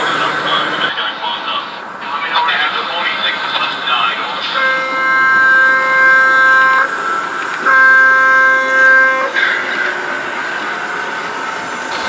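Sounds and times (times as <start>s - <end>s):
model train chord horn: 4.5s - 11.6s.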